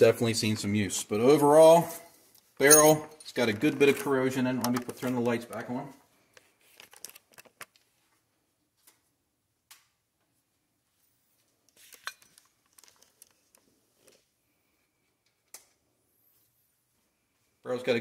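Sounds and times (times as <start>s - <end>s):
metal tools clinking: 2.6s - 4.1s.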